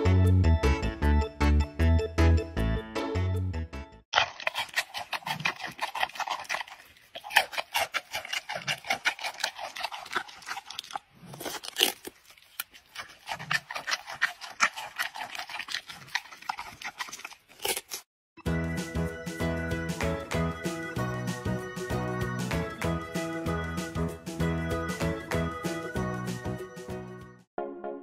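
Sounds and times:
animal crunching pumpkin: 0:04.1 - 0:18.1.

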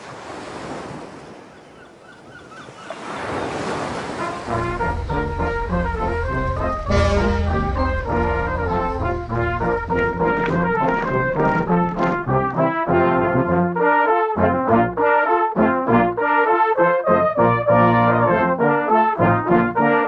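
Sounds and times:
brass instruments playing: 0:04.0 - 0:20.0
low rumble: 0:04.2 - 0:13.4.

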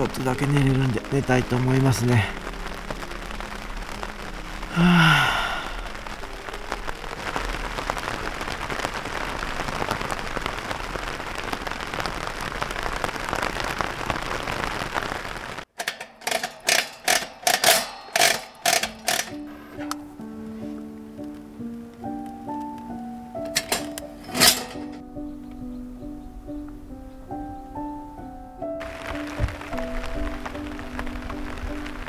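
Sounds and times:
rain pattering on a tent: 0:00.0 - 0:25.1, 0:28.7 - 0:32.0
sharp strokes: 0:15.8 - 0:20.1, 0:23.6 - 0:25.0.

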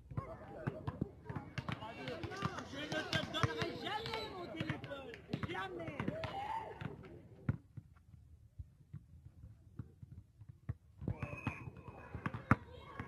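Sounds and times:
basketball bouncing on asphalt: 0:00.1 - 0:08.0.

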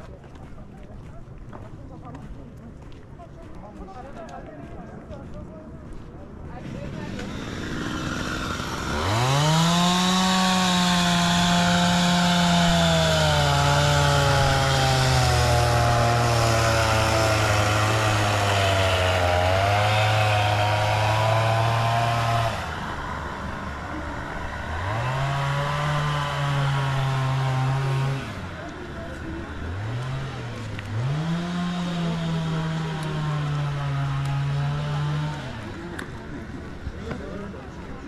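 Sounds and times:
small engine revving: 0:06.6 - 0:36.2.

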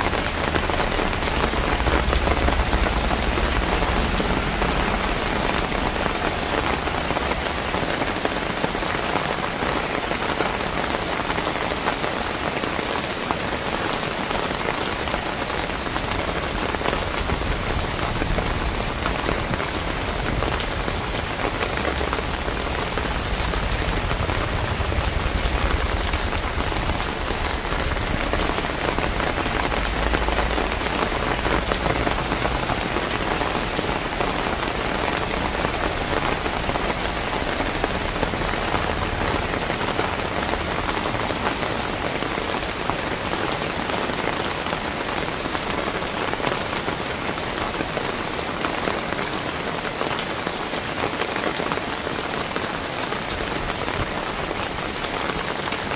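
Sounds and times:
low rumble: 0:00.0 - 0:07.7, 0:15.8 - 0:33.8
rain on wet pavement: 0:00.0 - 0:55.9.

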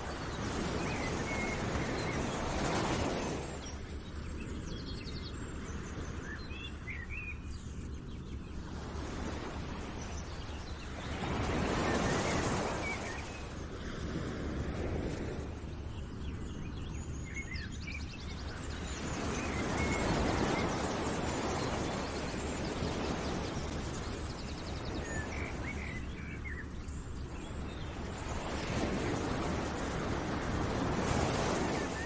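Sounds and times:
small birds chirping: 0:15.4 - 0:32.0.

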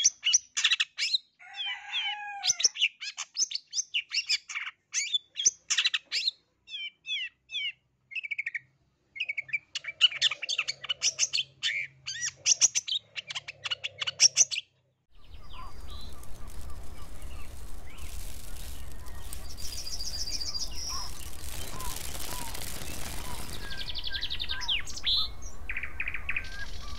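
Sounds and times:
shrike singing: 0:15.2 - 0:26.9
steady hiss with low hum: 0:15.2 - 0:26.9.

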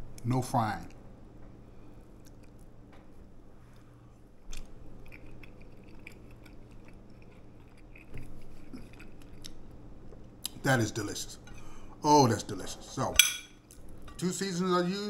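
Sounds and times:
person chewing: 0:02.1 - 0:02.7, 0:04.4 - 0:10.6.

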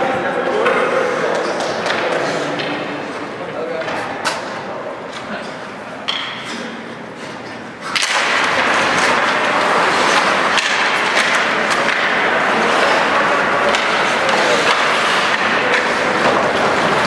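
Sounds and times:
hockey sticks and puck knocking: 0:00.6 - 0:02.9, 0:06.0 - 0:17.0
skate blades scraping ice: 0:06.6 - 0:17.0.

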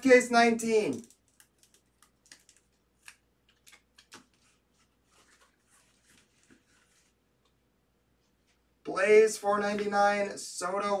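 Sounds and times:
plastic and card rustling: 0:00.0 - 0:07.5.

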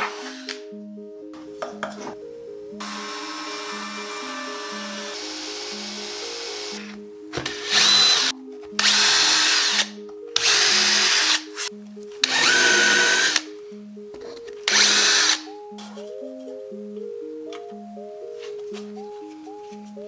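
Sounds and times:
cordless drill boring into wood: 0:02.8 - 0:06.8, 0:07.6 - 0:11.5, 0:12.2 - 0:13.4, 0:14.7 - 0:15.5.

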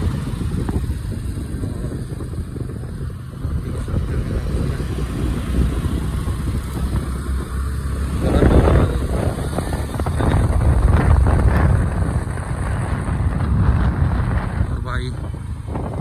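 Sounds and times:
rushes of noise: 0:00.0 - 0:16.0
scooter engine and road rumble: 0:00.0 - 0:16.0.

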